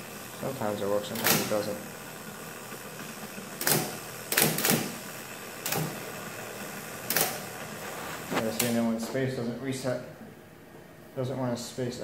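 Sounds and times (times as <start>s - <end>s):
typewriter motor humming: 0.0s - 8.8s
typewriter type-bar strikes: 3.6s - 4.9s.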